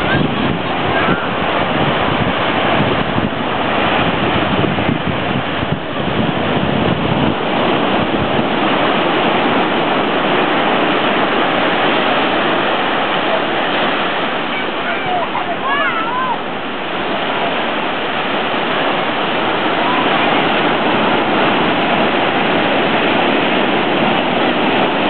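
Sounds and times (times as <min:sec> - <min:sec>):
ocean waves breaking on beach: 0:00.0 - 0:25.0.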